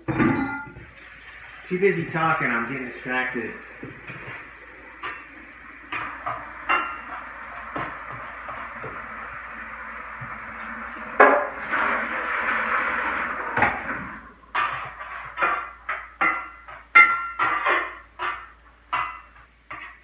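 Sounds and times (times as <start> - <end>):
eggs sizzling in a skillet: 0.8 - 20.0
spatula scraping and knocking pan: 3.8 - 9.4, 13.5 - 20.0.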